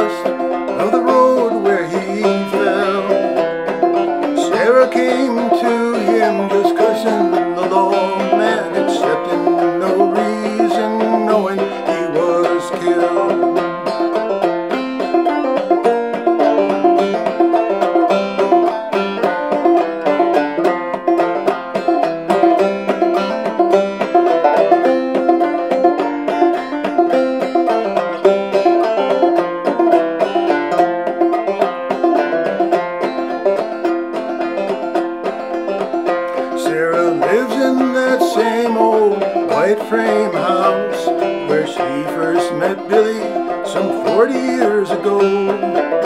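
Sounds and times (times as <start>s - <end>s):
man singing: 0.0s - 3.4s, 4.3s - 13.8s, 36.3s - 45.8s
banjo playing: 0.0s - 46.0s.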